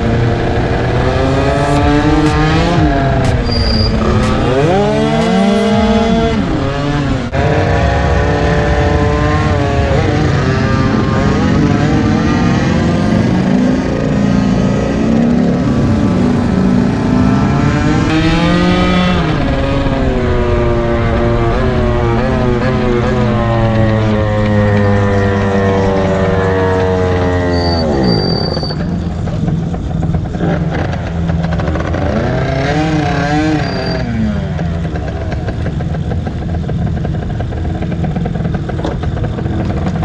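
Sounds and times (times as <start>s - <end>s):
two-stroke scooter engine accelerating: 0.0s - 40.0s.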